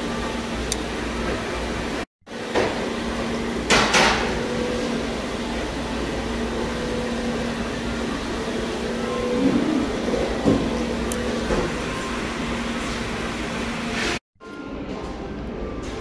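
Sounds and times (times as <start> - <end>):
machine hum: 0.0 - 16.0.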